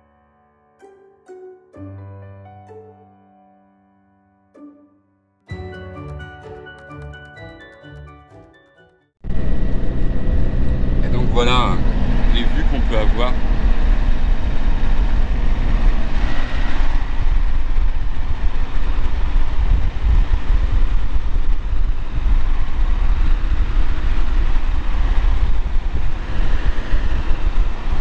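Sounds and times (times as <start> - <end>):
engine and road rumble: 9.2 - 28.0.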